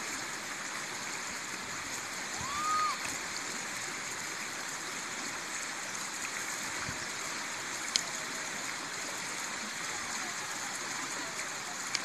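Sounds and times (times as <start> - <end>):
river water flowing over stones: 0.0 - 12.0.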